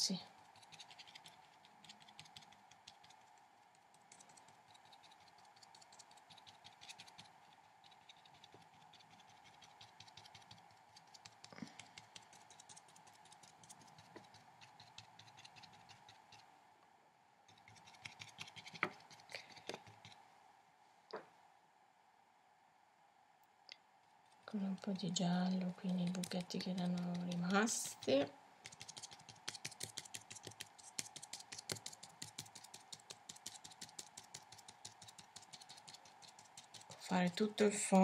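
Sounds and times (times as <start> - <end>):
brush dabbing on paper: 0.0 - 16.5, 24.3 - 37.6
faint steady hum: 0.0 - 38.0.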